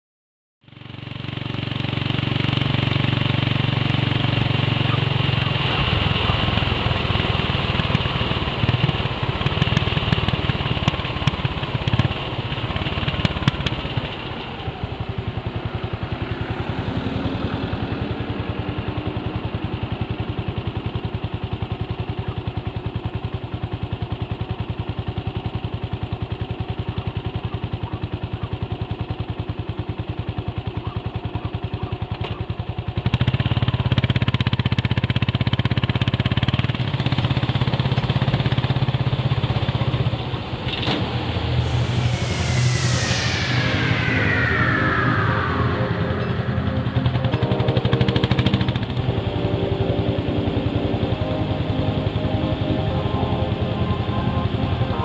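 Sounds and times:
motorcycle engine running: 0.7 - 28.5.

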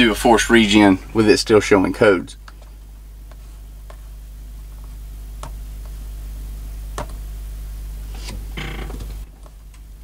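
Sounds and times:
low hum: 2.3 - 10.0.

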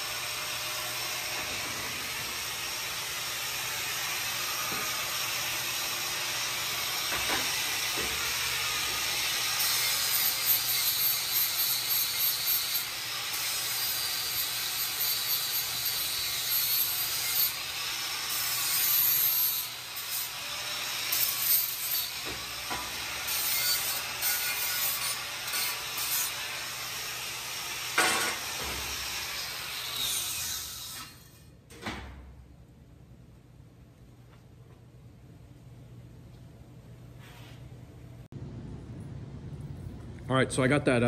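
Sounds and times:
angle grinder on steel: 0.0 - 31.5.

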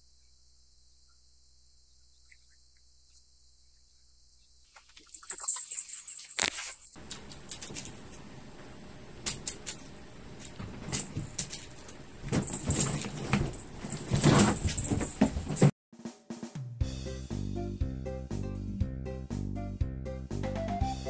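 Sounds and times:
fabric tent rustling and crinkling: 5.8 - 8.9, 10.1 - 15.7.

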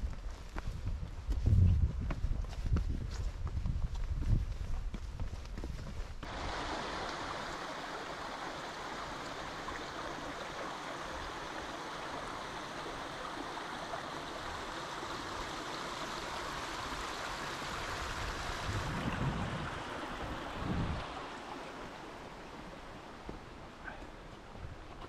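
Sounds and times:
brook splashing over stones: 6.2 - 23.6.

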